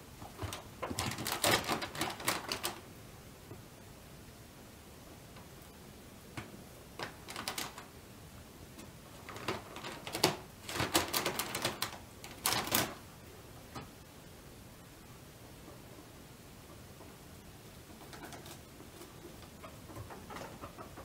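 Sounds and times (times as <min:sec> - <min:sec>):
guinea pigs scurrying and scratching: 0:00.0 - 0:02.9, 0:06.4 - 0:08.0, 0:08.7 - 0:13.0, 0:15.6 - 0:21.0.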